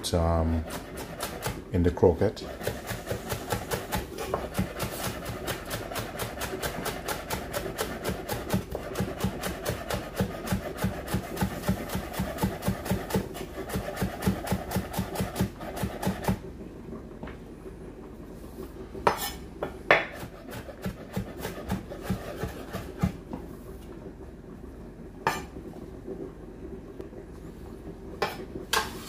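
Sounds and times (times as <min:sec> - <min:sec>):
knife chopping on wooden board: 0:02.5 - 0:16.4, 0:19.0 - 0:23.2.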